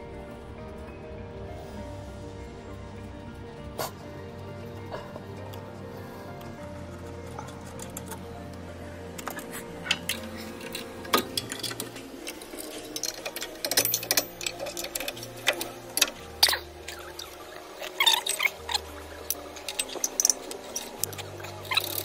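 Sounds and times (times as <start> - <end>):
metallic clicks and clanks: 6.4 - 22.0.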